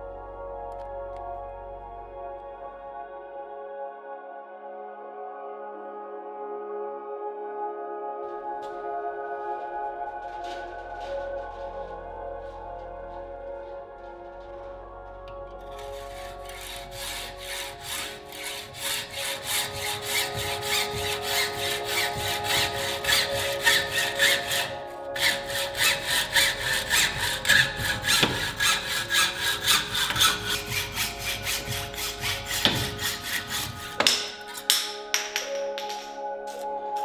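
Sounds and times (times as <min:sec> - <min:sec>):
hacksaw rasping strokes: 0:15.7 - 0:36.0.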